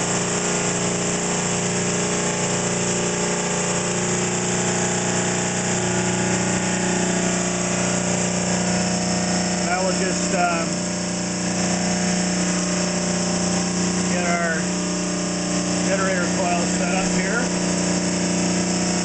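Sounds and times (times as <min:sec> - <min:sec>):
generator mechanical hum: 0:00.0 - 0:19.0.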